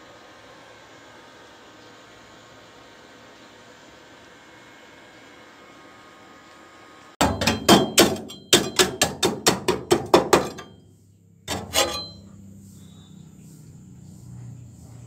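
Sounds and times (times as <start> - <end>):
hammer striking steel: 7.2 - 10.8, 11.5 - 12.3.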